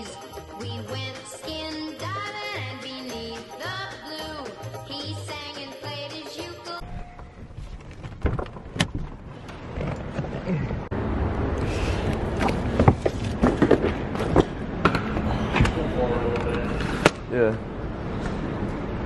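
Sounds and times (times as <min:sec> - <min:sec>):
outdoor noise: 0:06.8 - 0:19.0
luggage knocks and clunks: 0:07.5 - 0:10.8.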